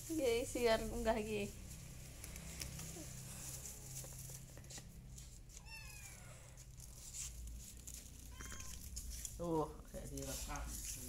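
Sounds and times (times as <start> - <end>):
kitten mewing: 8.3 - 8.8.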